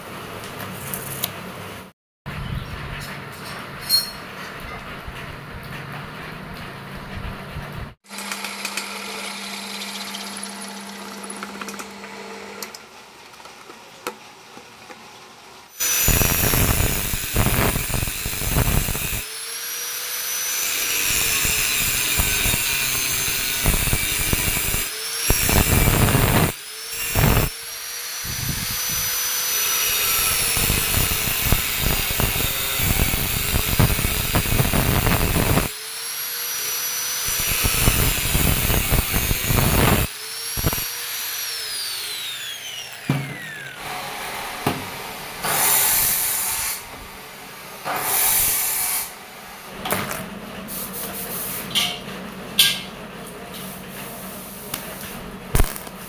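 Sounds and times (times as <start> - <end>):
angle grinder cutting metal: 8.0 - 12.8, 15.8 - 49.7, 55.5 - 56.0
drill press boring metal: 8.1 - 12.8, 15.8 - 44.3.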